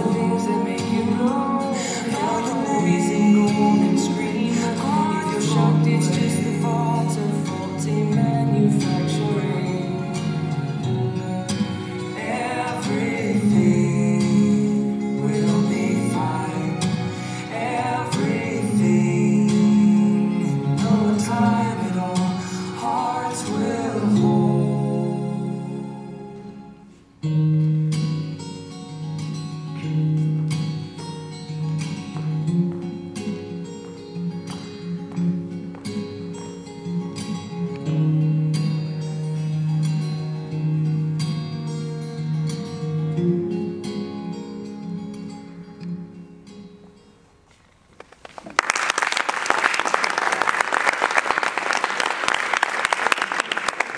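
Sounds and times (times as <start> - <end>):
background music: 0.0 - 47.4
plucked string instrumental music: 0.0 - 47.6
audience applause: 48.0 - 53.9.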